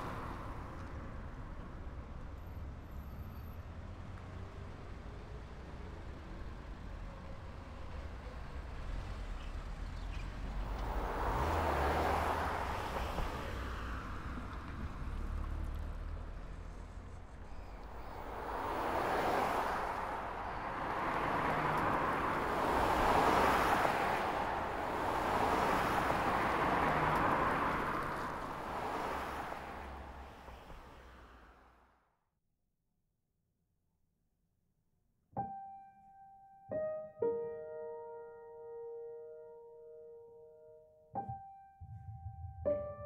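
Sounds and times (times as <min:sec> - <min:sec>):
low traffic rumble: 0:00.0 - 0:31.8, 0:41.8 - 0:43.0
cars passing: 0:00.0 - 0:32.0.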